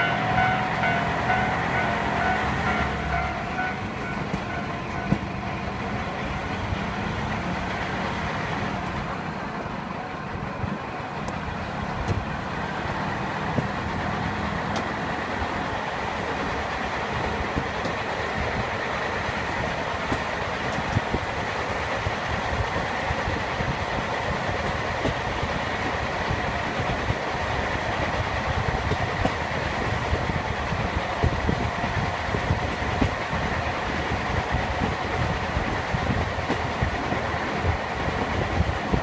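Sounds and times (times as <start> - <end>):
railcar engine and wheels rumbling: 0.0 - 39.0
clicks from track joints: 14.7 - 15.0, 17.5 - 18.1, 20.0 - 21.1, 36.4 - 37.2.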